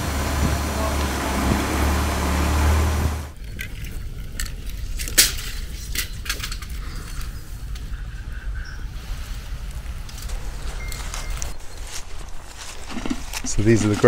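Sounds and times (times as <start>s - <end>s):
diesel truck engine droning: 0.0s - 3.4s.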